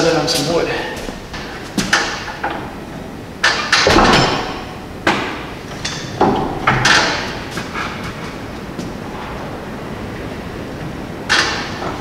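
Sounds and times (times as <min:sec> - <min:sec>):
metal clanking and knocking: 0:01.1 - 0:02.8, 0:03.4 - 0:09.0.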